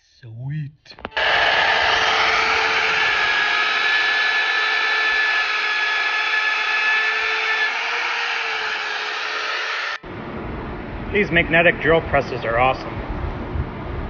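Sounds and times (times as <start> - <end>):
drill press motor whining: 1.1 - 10.0.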